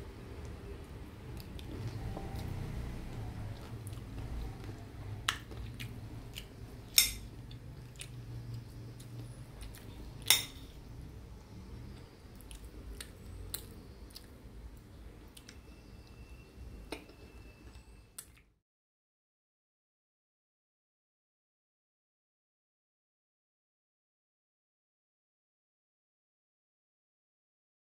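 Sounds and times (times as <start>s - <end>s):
low steady hum: 0.0s - 18.6s
spoon clinking on ceramic plate: 10.2s - 10.7s.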